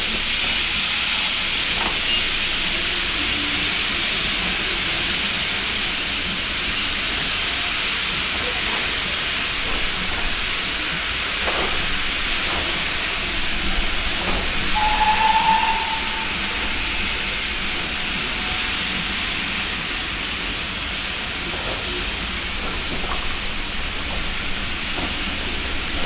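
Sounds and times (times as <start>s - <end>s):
steam locomotive hissing: 0.0s - 26.0s
train coaches rolling: 0.0s - 26.0s
brief high tone: 14.8s - 16.6s.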